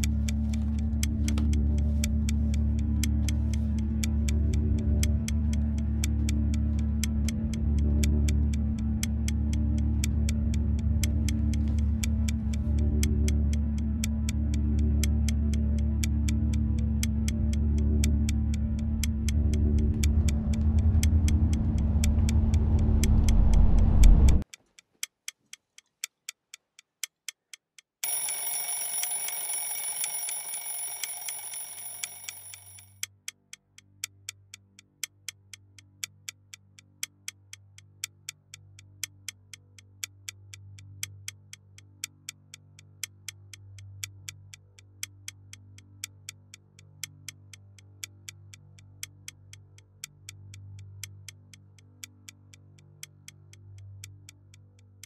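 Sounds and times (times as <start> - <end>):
loud low drone: 0.0 - 24.4
soft low music: 0.0 - 24.4
clock ticking: 0.0 - 55.0
bright ringing tone: 28.0 - 32.9.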